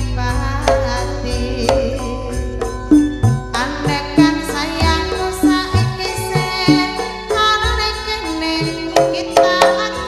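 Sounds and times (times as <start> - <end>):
woman singing: 0.0 - 10.0
metallophone and gong-chime tones: 0.8 - 7.4.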